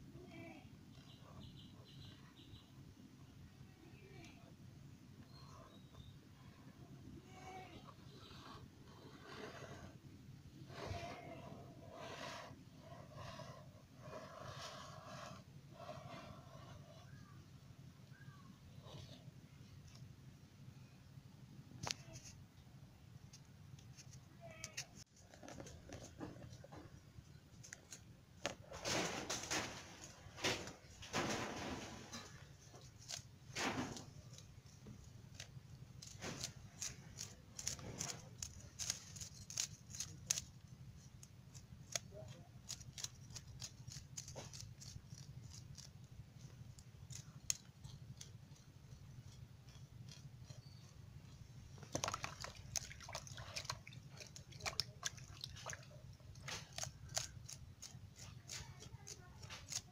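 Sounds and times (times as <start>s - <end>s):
knife scraping fish scales: 10.6s - 17.1s, 32.0s - 51.2s, 51.9s - 59.9s
hands rubbing fish in water: 51.8s - 55.9s.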